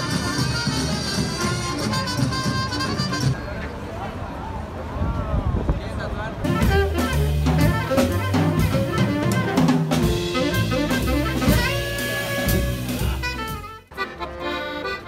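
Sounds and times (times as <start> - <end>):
drum kit with cymbals: 0.0 - 3.4, 6.4 - 14.0
saxophone: 0.0 - 3.4, 6.5 - 15.0
bass line: 6.4 - 15.0.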